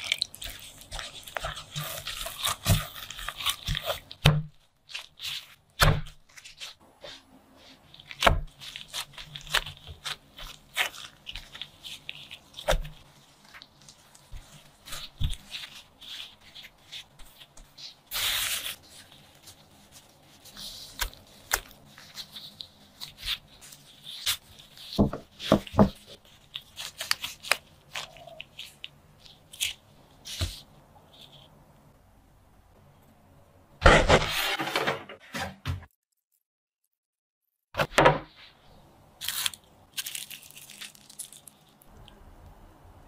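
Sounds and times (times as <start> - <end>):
hands patting dough: 0.0 - 30.7
tearing rustle: 0.0 - 31.5, 39.2 - 42.0.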